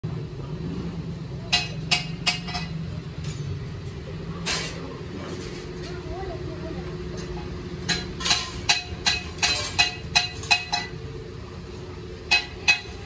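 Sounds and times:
steady low hum: 0:00.0 - 0:13.0
scrap iron clinking: 0:07.2 - 0:11.0.

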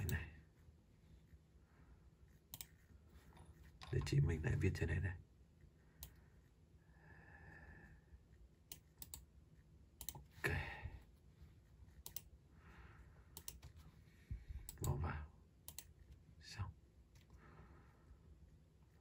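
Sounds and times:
mouse and keyboard clicks: 0:02.5 - 0:02.8, 0:08.7 - 0:09.3, 0:12.0 - 0:12.3, 0:13.3 - 0:13.8.

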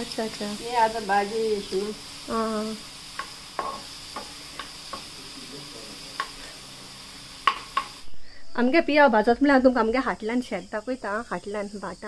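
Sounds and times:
onions sizzling: 0:00.0 - 0:09.9
spatula scraping and tapping pan: 0:03.1 - 0:05.2, 0:06.1 - 0:06.5, 0:07.4 - 0:08.0.

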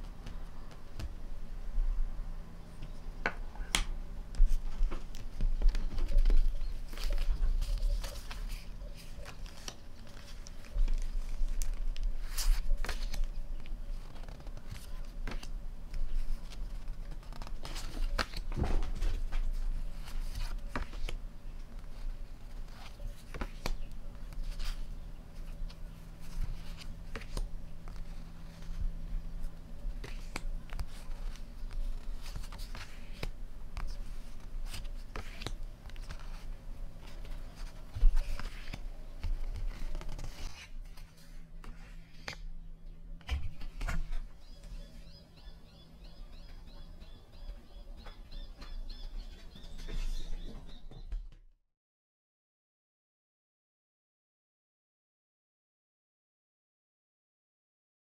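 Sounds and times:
paper cards rustling: 0:03.2 - 0:42.6, 0:43.2 - 0:45.2.

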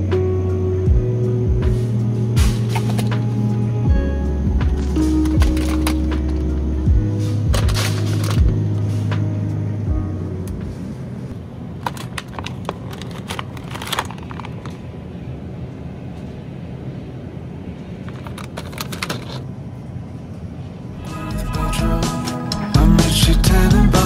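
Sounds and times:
music: 0:00.0 - 0:11.3, 0:21.0 - 0:24.0
low store hum: 0:00.0 - 0:24.0
plastic container crackling and clicking: 0:11.8 - 0:14.8, 0:18.1 - 0:19.4.

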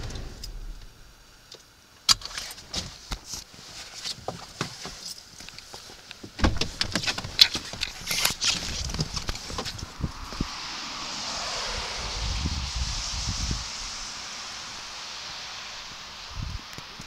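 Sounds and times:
car door thump: 0:06.4 - 0:06.8.

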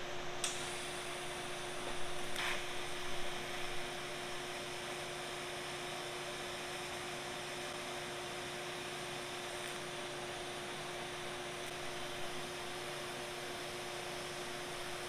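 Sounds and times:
welding arc hum and hiss: 0:00.0 - 0:15.0.

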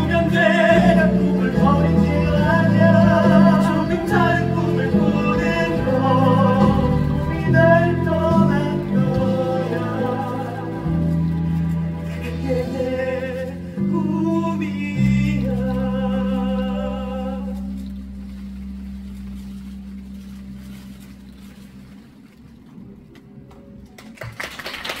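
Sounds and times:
men singing with vibrato: 0:00.0 - 0:17.9
sustained low backing chord: 0:00.0 - 0:22.9
people clapping: 0:23.5 - 0:25.0.

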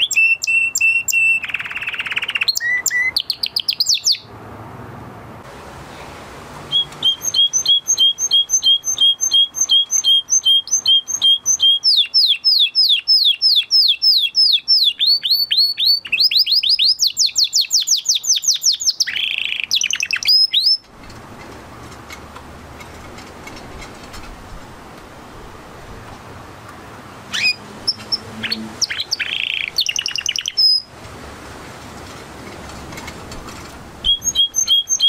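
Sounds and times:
canary singing: 0:00.0 - 0:04.3, 0:06.6 - 0:21.2, 0:27.2 - 0:30.9, 0:34.0 - 0:35.0.

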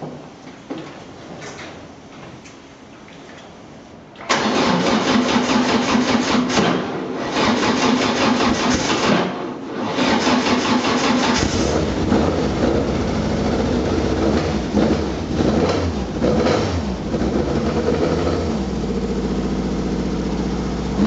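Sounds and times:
race car engine running loudly: 0:11.3 - 0:21.0.

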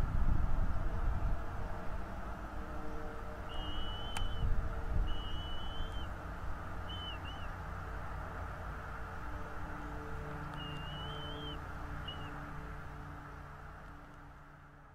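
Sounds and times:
bird whistling thin notes: 0:03.5 - 0:06.1, 0:06.8 - 0:07.6, 0:10.6 - 0:12.4
sharp click: 0:04.1 - 0:04.3.

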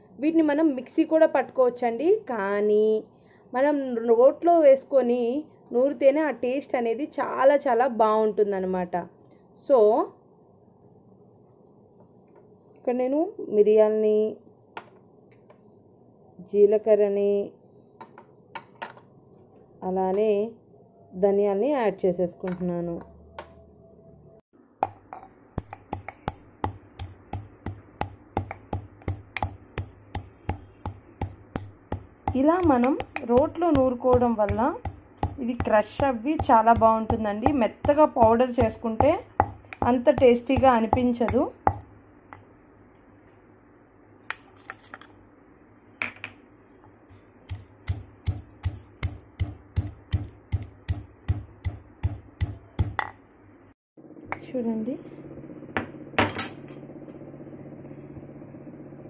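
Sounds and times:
pestle pounding in mortar: 0:24.8 - 0:42.0, 0:47.5 - 0:53.1.

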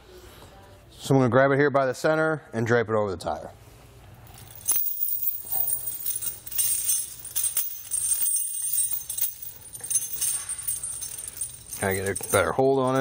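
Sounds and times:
steel chains jingling: 0:04.3 - 0:13.0.

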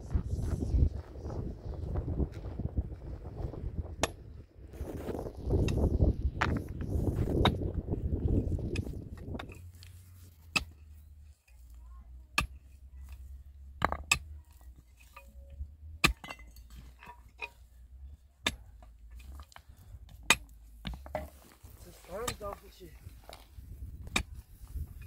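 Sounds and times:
pickaxe striking stony ground: 0:04.0 - 0:04.2, 0:10.5 - 0:10.8, 0:12.4 - 0:12.6, 0:13.7 - 0:14.4, 0:15.2 - 0:17.6, 0:18.4 - 0:23.4, 0:24.0 - 0:25.0.

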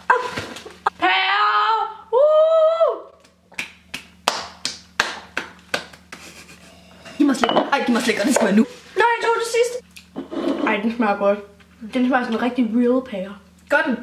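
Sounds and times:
girl wailing: 0:01.0 - 0:03.1
hand claps: 0:03.2 - 0:06.5.

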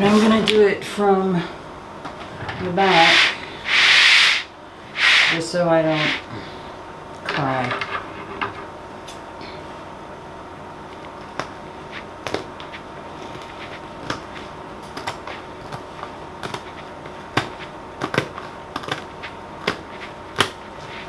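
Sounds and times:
paper canvas clicking and tapping: 0:12.2 - 0:20.6.

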